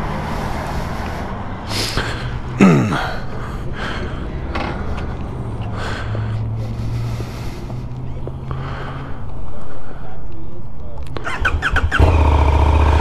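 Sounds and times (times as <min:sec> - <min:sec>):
breathing on microphone: 0:00.0 - 0:10.4.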